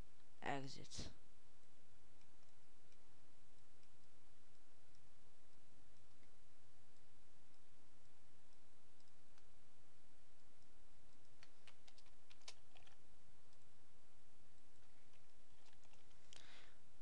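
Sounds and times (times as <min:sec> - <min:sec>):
faint steady hum: 0:00.0 - 0:17.0
keyboard keys clicking: 0:11.4 - 0:13.0.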